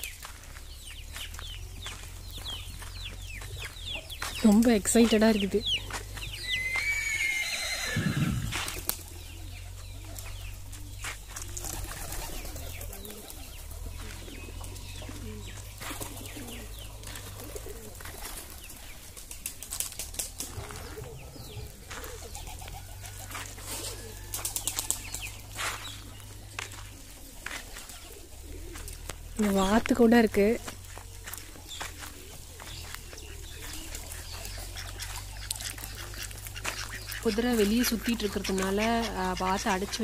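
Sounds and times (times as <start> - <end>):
birds chirping: 0.0 - 40.0
doves cooing: 0.0 - 40.0
horse whinnying: 6.5 - 8.6.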